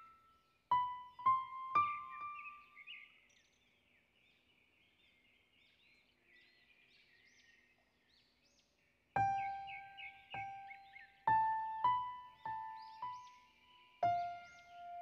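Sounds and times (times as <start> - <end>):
piano music: 0.7 - 2.6, 9.2 - 13.4, 14.0 - 15.0
birds chirping: 0.7 - 15.0.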